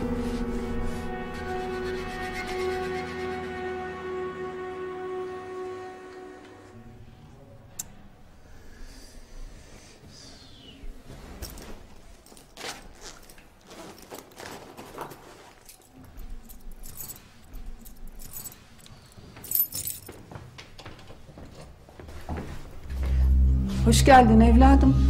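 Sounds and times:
keys jangling: 0:15.1 - 0:20.2.

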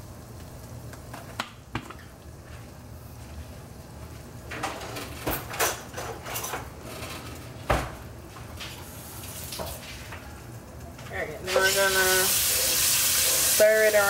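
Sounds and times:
faint sizzling in oil: 0:08.6 - 0:14.0.

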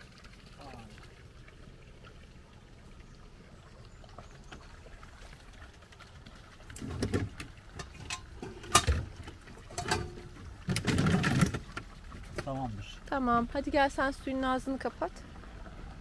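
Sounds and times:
plastic jugs knocking and clunking: 0:06.8 - 0:12.6.

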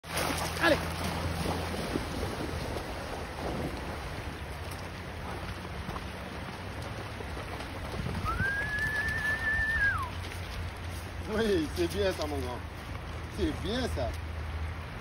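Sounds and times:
dog splashing through water: 0:00.0 - 0:10.7
river water running over stones: 0:00.0 - 0:15.0
long whistle: 0:08.2 - 0:10.1.

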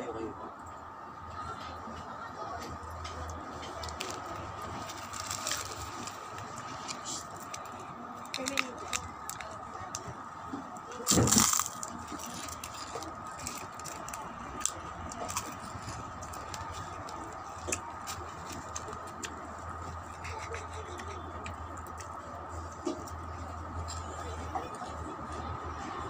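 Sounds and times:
plastic bag crinkling: 0:03.6 - 0:10.0, 0:11.0 - 0:20.0.

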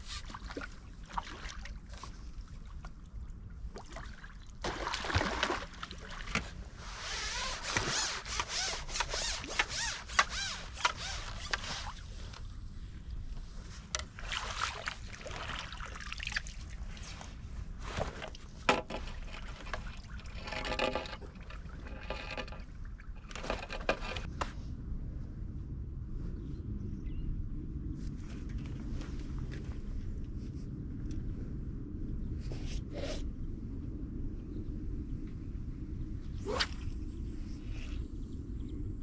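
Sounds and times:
fish thrashing water splashing: 0:04.7 - 0:06.3.

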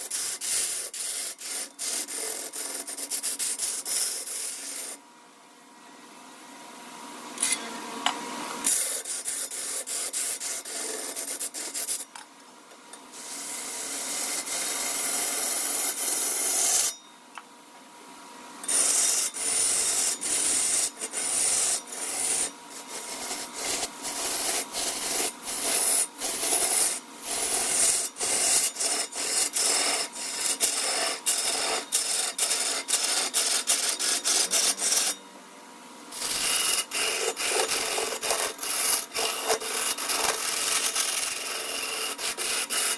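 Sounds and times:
tool scraping wood: 0:00.0 - 0:05.0, 0:08.6 - 0:12.2, 0:18.7 - 0:35.2, 0:36.2 - 0:42.9.

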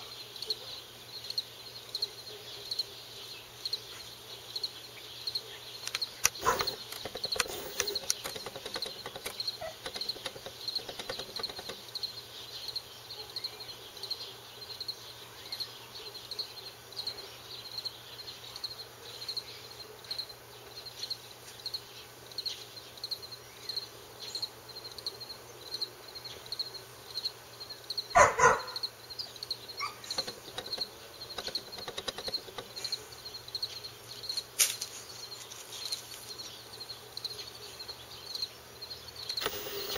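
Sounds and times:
insects chirping: 0:00.1 - 0:39.9
dog barking: 0:06.4 - 0:06.8, 0:28.2 - 0:28.8, 0:29.8 - 0:30.2.

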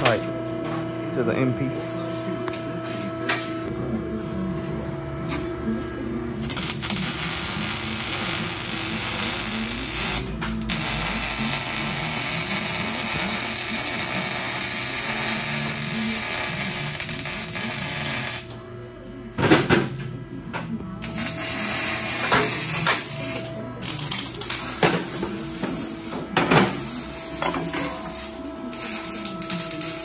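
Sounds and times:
welding arc crackling and hissing: 0:06.4 - 0:18.6, 0:21.0 - 0:30.0.

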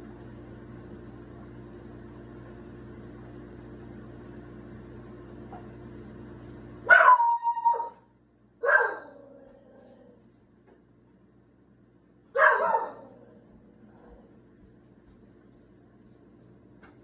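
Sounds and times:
steady hum: 0:00.0 - 0:17.0
dog barking: 0:06.8 - 0:09.4, 0:12.3 - 0:13.3.

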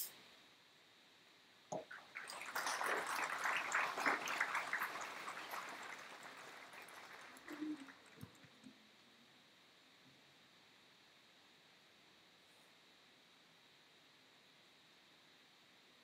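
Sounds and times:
crowd applauding: 0:01.8 - 0:08.8.

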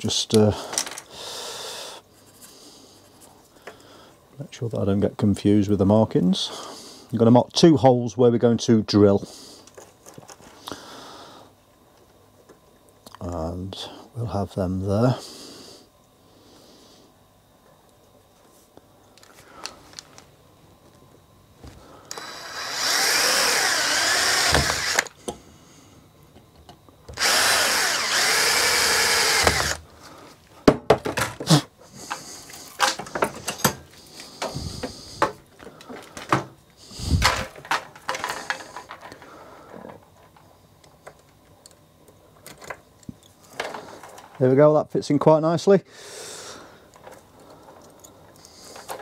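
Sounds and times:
clicks and knocks of handled parts: 0:00.3 - 0:01.1, 0:32.1 - 0:36.5, 0:37.2 - 0:44.4, 0:46.9 - 0:49.0
electric drill drilling copper pipe: 0:22.1 - 0:25.2, 0:27.1 - 0:29.9.

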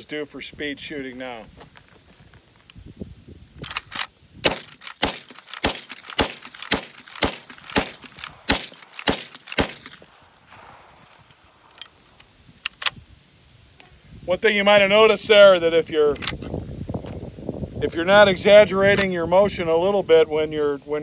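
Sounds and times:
rifle lever clacking: 0:03.6 - 0:10.0, 0:12.6 - 0:13.0, 0:16.1 - 0:16.6
rifle shots: 0:03.6 - 0:11.6.

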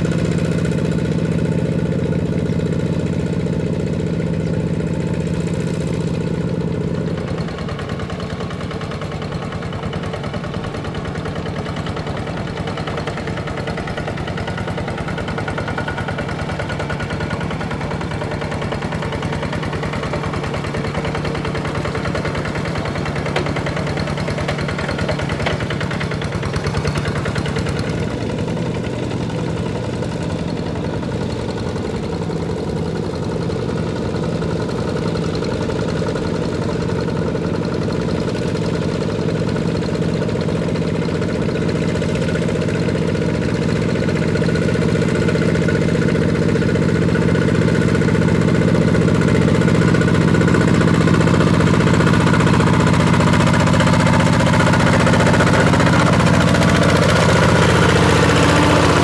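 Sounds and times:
diesel engine running under load: 0:00.0 - 0:59.0.

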